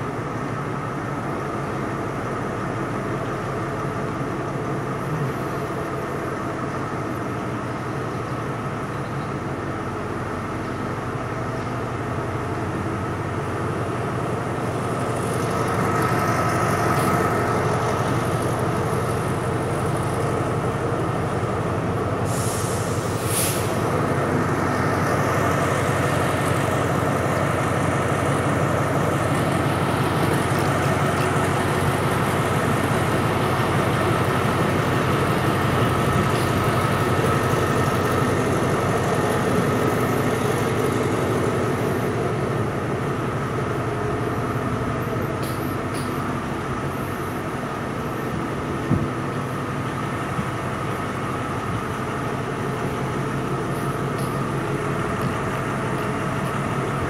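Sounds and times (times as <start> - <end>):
train wheels rumbling: 0.0 - 57.0
short hiss: 22.3 - 23.8.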